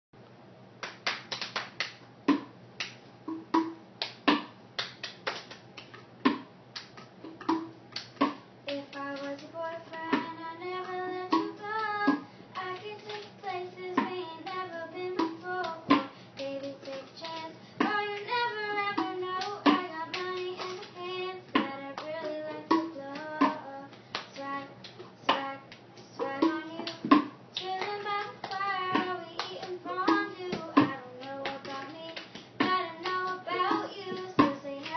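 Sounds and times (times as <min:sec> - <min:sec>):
hand claps: 0:00.8 - 0:03.0, 0:03.6 - 0:13.4, 0:15.2 - 0:21.0, 0:21.6 - 0:34.9
girl singing: 0:08.6 - 0:34.9.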